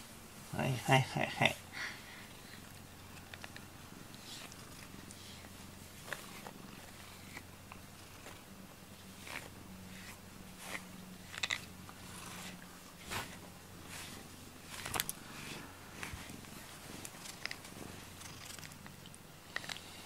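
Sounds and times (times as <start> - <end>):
cat purring: 3.2 - 12.6, 13.2 - 20.0
brush strokes through fur: 4.2 - 18.5.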